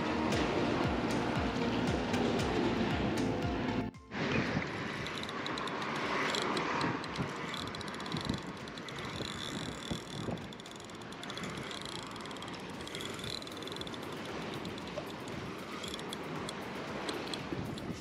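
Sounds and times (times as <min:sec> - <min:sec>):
wind buffeting microphone: 0:04.1 - 0:18.0.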